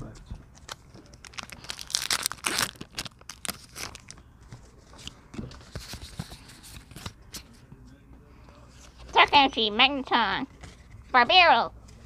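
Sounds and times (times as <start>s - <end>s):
foil pack tearing: 1.2s - 4.1s.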